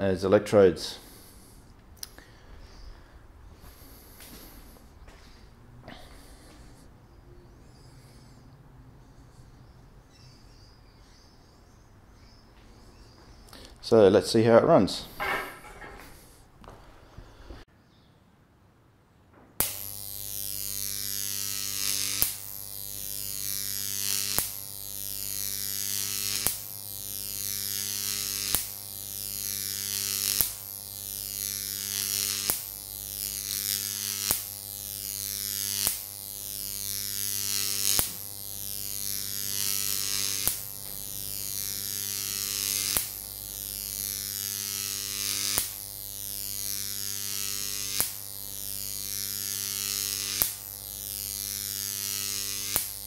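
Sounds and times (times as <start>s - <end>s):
transformer electrical buzz: 0.0s - 17.6s, 19.5s - 53.0s
electric arc crackling: 19.6s - 53.0s
electric arc snap: 19.6s - 53.0s.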